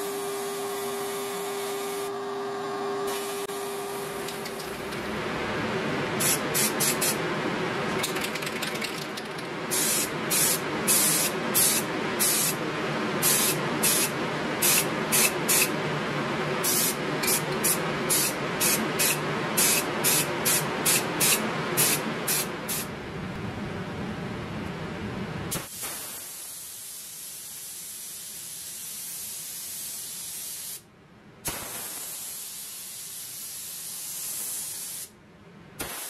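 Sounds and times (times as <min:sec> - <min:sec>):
spray paint can hissing: 0:06.2 - 0:07.2, 0:08.0 - 0:12.6, 0:13.2 - 0:15.7, 0:16.6 - 0:22.9, 0:31.5 - 0:35.1.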